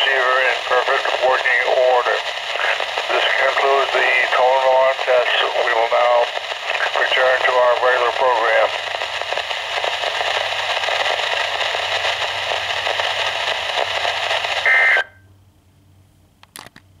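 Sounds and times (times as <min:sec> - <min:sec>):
radio static hiss: 0:00.0 - 0:15.2
two-tone data burst: 0:13.2 - 0:15.2.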